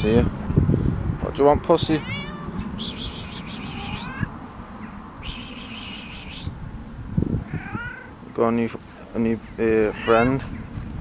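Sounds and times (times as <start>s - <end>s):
cat meowing faintly: 2.0s - 2.6s, 3.7s - 4.4s, 7.4s - 8.2s, 9.9s - 10.5s
high hissing buzzes: 2.8s - 4.2s, 5.2s - 6.6s.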